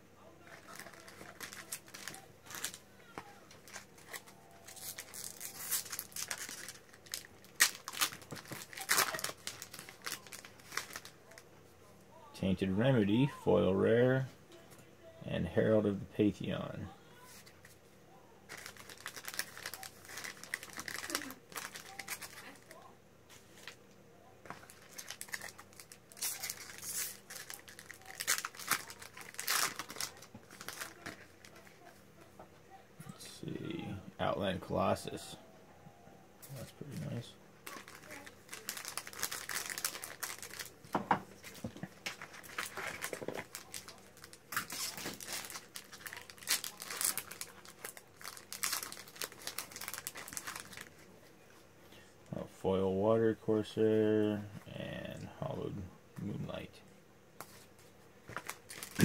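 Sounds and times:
foil wrapper crinkling and tearing: 0.4s - 11.4s, 18.5s - 22.8s, 24.5s - 31.9s, 37.0s - 51.0s, 58.2s - 59.0s.

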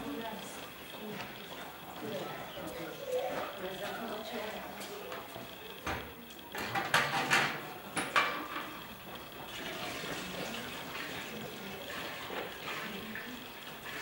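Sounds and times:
kitchenware knocking and clinking: 6.6s - 8.7s.

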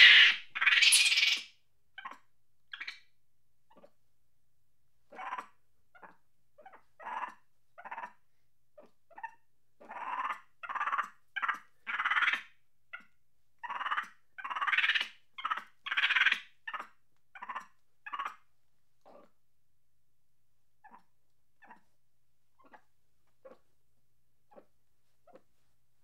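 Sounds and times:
monkey chattering angrily: 0.0s - 2.2s, 9.1s - 12.5s, 13.7s - 18.4s.

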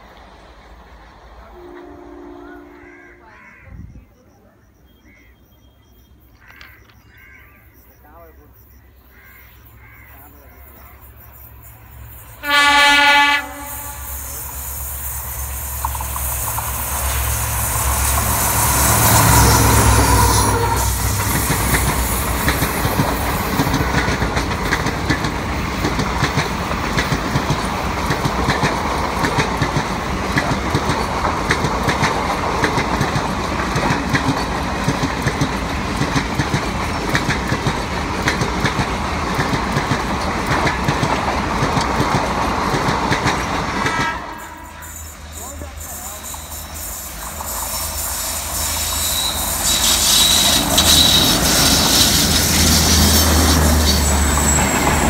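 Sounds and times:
diesel locomotive engine: 0.0s - 55.0s
locomotive horn: 1.4s - 3.6s, 12.4s - 14.4s, 18.8s - 21.2s, 43.8s - 45.1s
train wheels clattering over joints: 14.2s - 44.2s, 45.0s - 55.0s.

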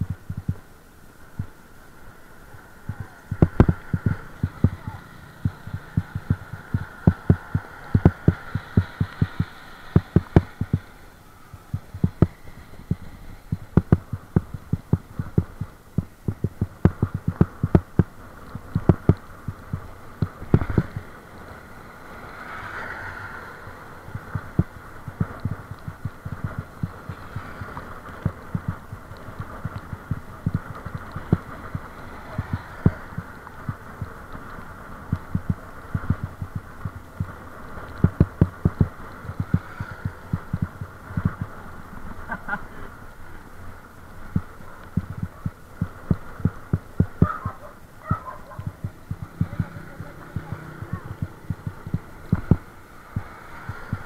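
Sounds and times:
muffled thumps on camera microphone: 0.0s - 0.6s, 11.7s - 18.1s
steady background hiss: 0.0s - 54.0s.

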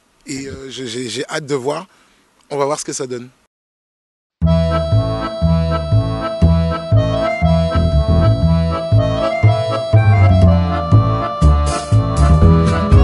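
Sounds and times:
background music: 4.4s - 13.0s.

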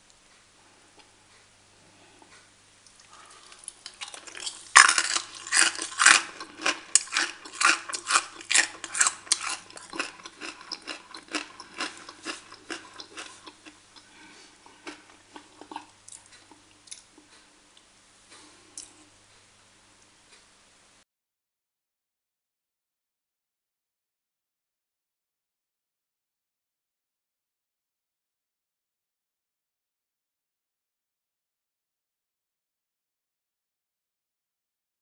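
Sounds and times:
crunching crisp pork crackling: 2.9s - 17.4s.

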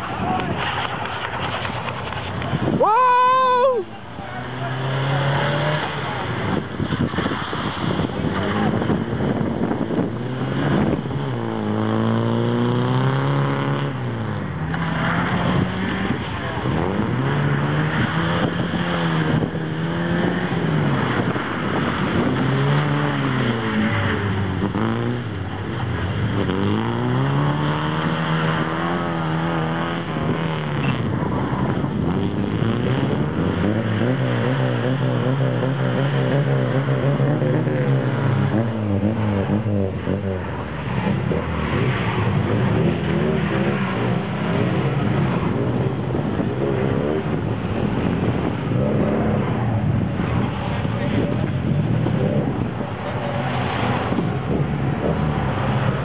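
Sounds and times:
car engine revving: 0.0s - 56.0s.

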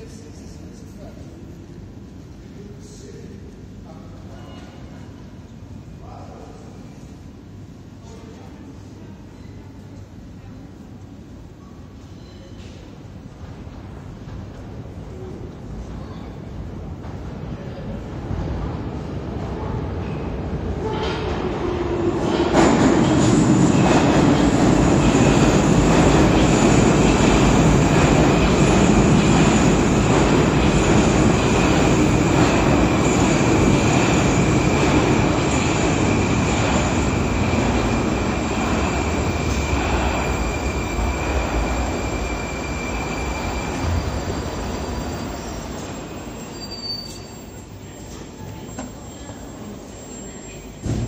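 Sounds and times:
rumble of train wheels: 0.0s - 51.0s
steady high whine: 24.3s - 46.5s.

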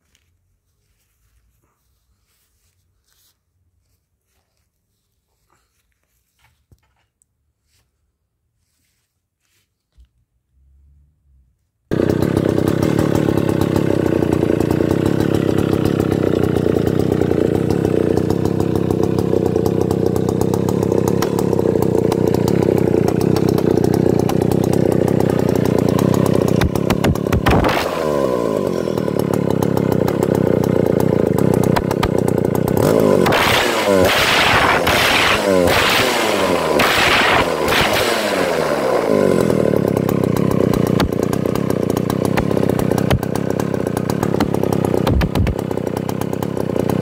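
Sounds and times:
chainsaw engine idling and revving: 11.9s - 47.0s.

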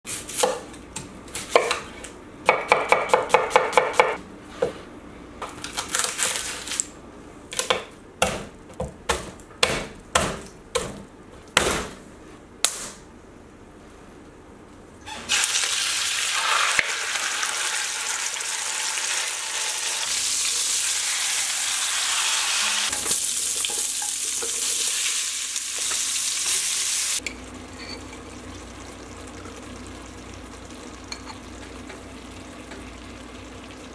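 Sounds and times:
knife chopping on wooden board: 7.6s - 11.0s
food sizzling in a pot: 15.1s - 33.9s.

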